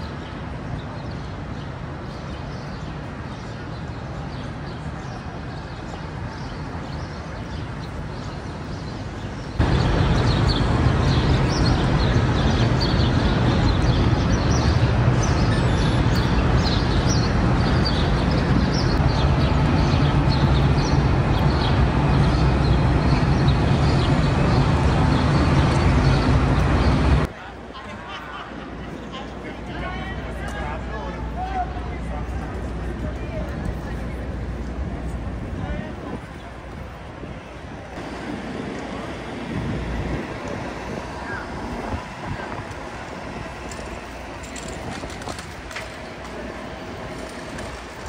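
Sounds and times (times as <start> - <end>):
birds chirping: 0.0 - 27.3
low mechanical hum: 28.6 - 48.0.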